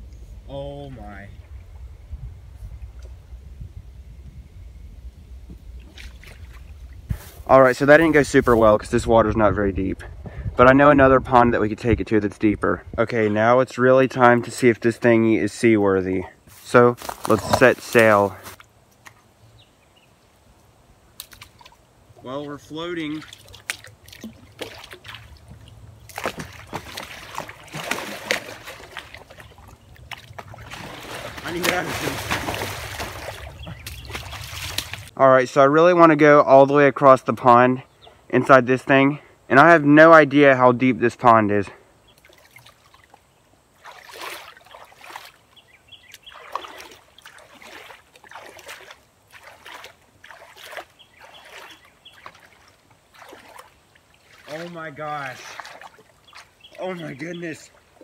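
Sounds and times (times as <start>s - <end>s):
water splashing and sloshing: 5.4s - 8.7s, 21.0s - 35.2s, 42.1s - 58.0s.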